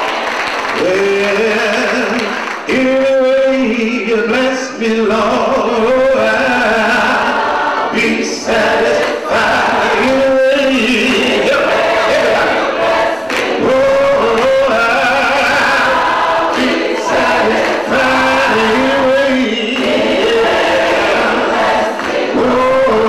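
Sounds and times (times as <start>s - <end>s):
choir singing in harmony: 5.3s - 23.0s.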